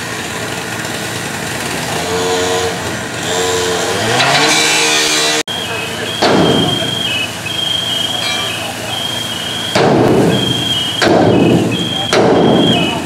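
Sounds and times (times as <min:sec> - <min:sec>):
high tone: 0:05.5 - 0:09.7.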